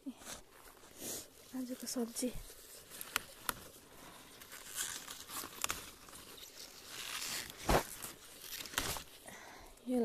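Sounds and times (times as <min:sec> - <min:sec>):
leaves rustling: 0:00.0 - 0:10.0
plant stalks snapping: 0:04.4 - 0:09.2.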